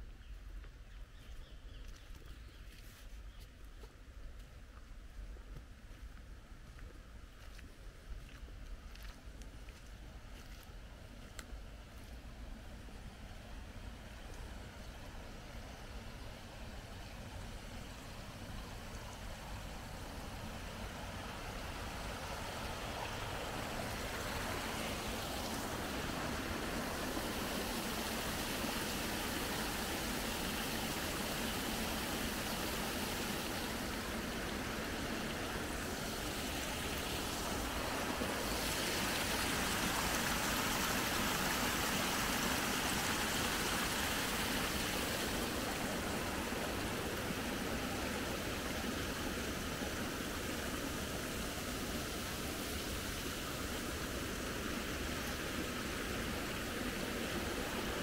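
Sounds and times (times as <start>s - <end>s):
water rushing through weir: 12.6s - 58.0s.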